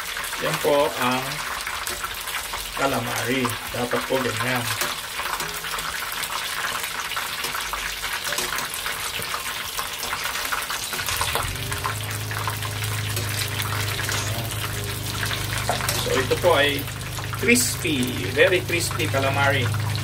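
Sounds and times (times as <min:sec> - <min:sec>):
deep-frying crackling sizzle: 0:00.0 - 0:20.0
low hum: 0:10.9 - 0:20.0.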